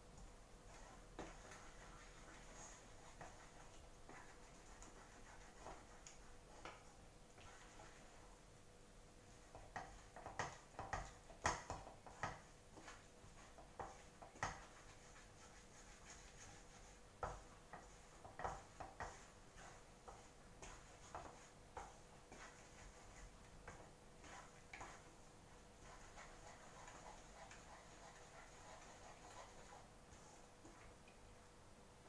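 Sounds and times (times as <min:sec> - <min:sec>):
wooden spatula scraping a pan: 0:12.1 - 0:25.2, 0:25.8 - 0:30.9.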